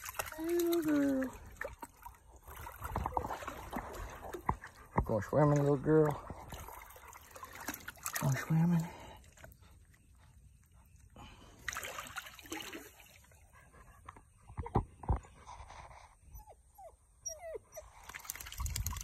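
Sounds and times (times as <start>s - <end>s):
puppy whining: 16.2s - 18.0s
puppy whimpering: 16.3s - 17.9s.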